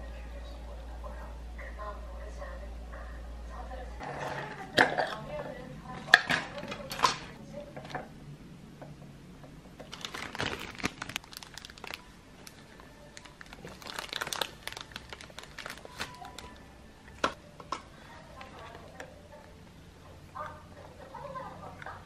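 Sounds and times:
packaging crinkling: 9.8s - 17.4s.

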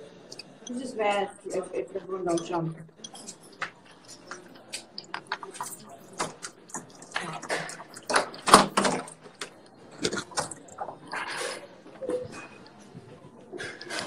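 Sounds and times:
faint muffled voices: 0.0s - 14.0s
knocks clatters and rustling: 3.0s - 14.0s.

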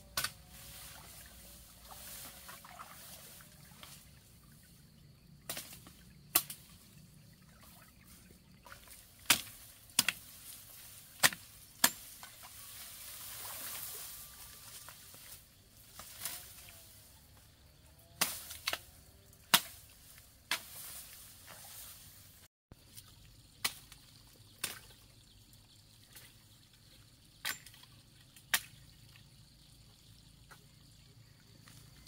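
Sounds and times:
bamboo stems chopped cracking: 0.1s - 0.8s, 5.5s - 6.8s, 9.2s - 13.8s, 15.9s - 16.7s, 18.2s - 21.3s.

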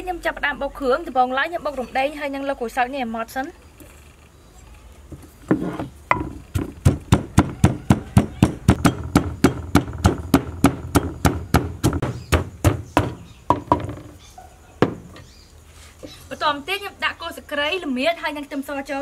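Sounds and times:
pestle pounding in mortar: 5.5s - 14.0s.

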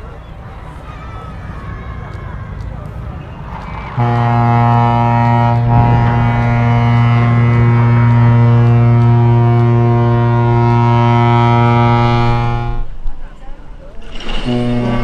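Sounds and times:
deep ship's horn blast: 3.9s - 13.0s, 14.0s - 15.0s
water rushing and splashing: 13.6s - 15.0s.

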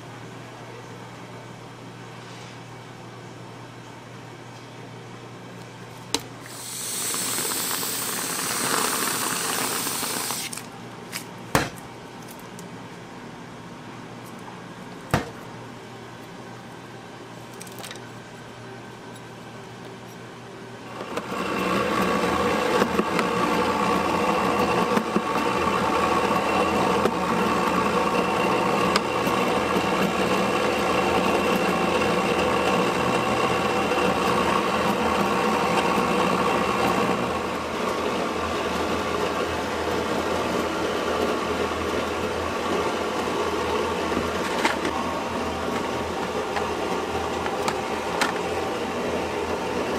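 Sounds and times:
ice shaving machine whirring: 6.4s - 10.7s, 20.9s - 49.9s.

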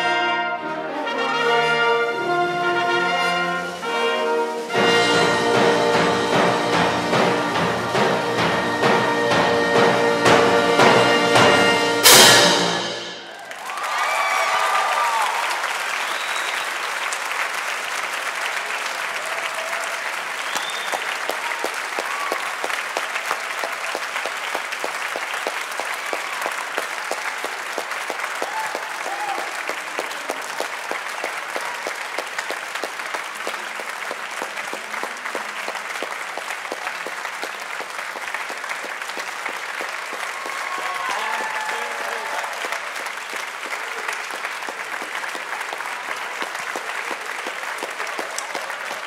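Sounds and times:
audience applauding: 12.8s - 49.0s.

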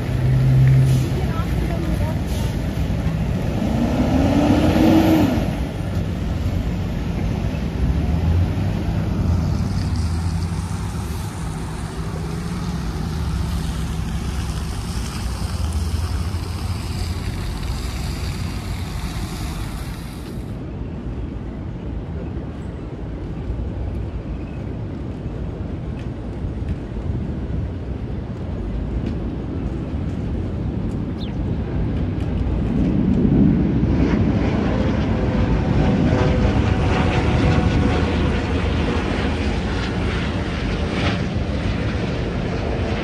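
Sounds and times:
engine humming: 0.0s - 20.6s
wind on microphone: 0.0s - 43.0s.

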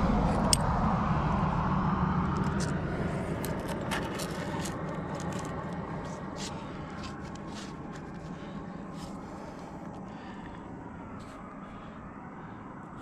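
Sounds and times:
low wind rumble: 0.0s - 13.0s
hands and gear scraping rock: 3.2s - 9.2s.

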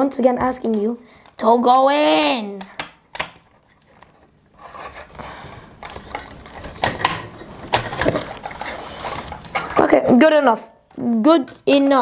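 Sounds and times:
plastic parts rustling: 3.4s - 10.1s.

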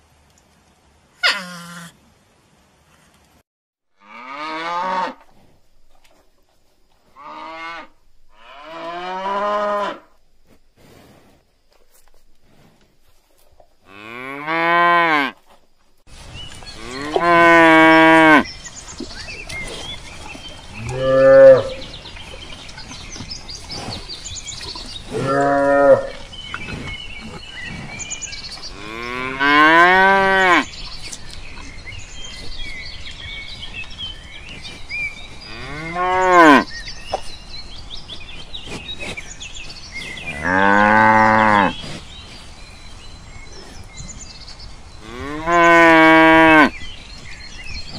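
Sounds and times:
cows mooing: 4.0s - 5.2s, 7.2s - 10.1s, 16.8s - 18.5s, 20.8s - 22.0s, 25.0s - 26.4s, 28.7s - 30.8s, 35.5s - 36.7s, 40.3s - 41.8s, 45.0s - 46.8s.

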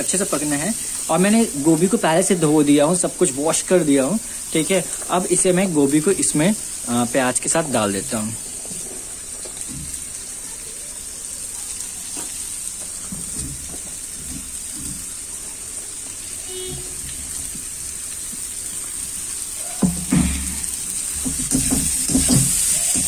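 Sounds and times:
vegetables sizzling in oil: 0.0s - 23.0s
spatula knocking pan: 19.8s - 23.0s.

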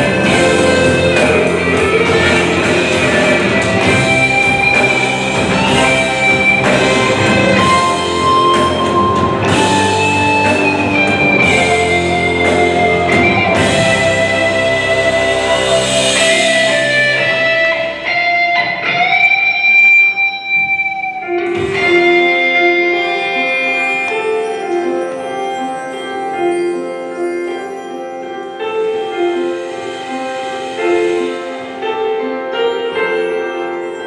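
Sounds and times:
gliding guitar note: 0.0s - 24.4s
cymbal washes: 0.0s - 24.8s, 28.6s - 34.0s
rock band playing instrumental: 0.0s - 34.0s.

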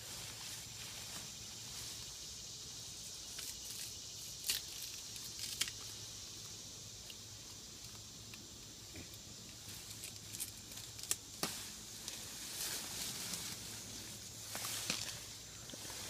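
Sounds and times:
undergrowth rustling and crackling: 0.0s - 16.0s
twigs snapping: 3.2s - 6.0s, 7.0s - 12.2s, 14.5s - 15.3s.

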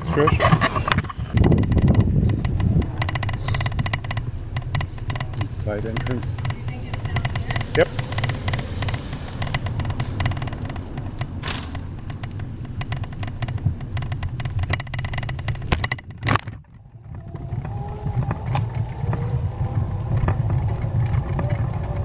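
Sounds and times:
bicycle tyres rumbling on bricks: 0.0s - 22.0s
sharp knocks: 0.8s - 16.7s.

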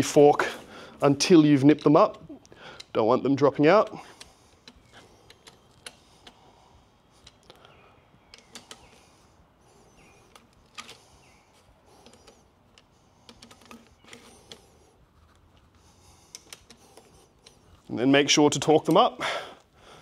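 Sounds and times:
hand tools clicking and tapping metal: 1.2s - 6.5s, 7.1s - 9.2s, 9.9s - 19.7s.

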